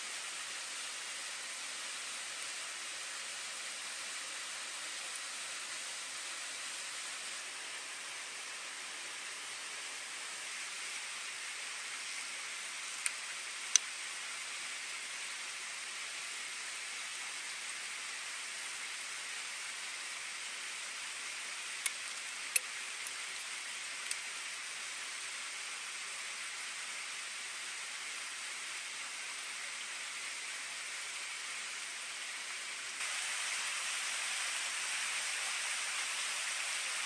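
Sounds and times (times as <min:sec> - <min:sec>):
river water rushing: 0:33.0 - 0:37.0.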